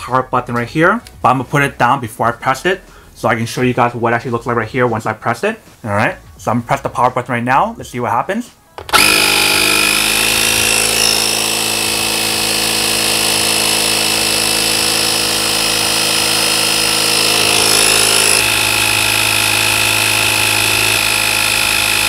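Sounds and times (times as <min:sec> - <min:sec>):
air compressor running: 0:08.8 - 0:22.0.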